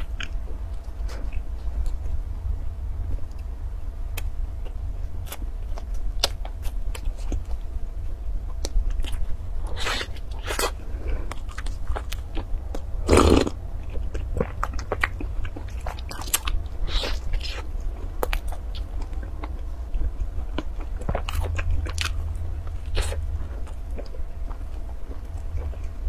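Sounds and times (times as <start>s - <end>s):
chewing pastry: 0.0s - 2.2s, 4.1s - 26.0s.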